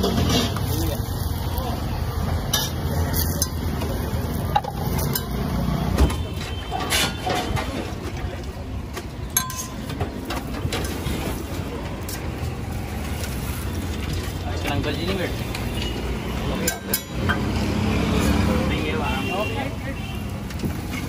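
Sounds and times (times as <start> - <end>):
flatbread frying on a griddle: 0.0 - 21.0
low rumble of street traffic: 0.0 - 21.0
ladle and tongs clicking on metal: 9.3 - 10.0.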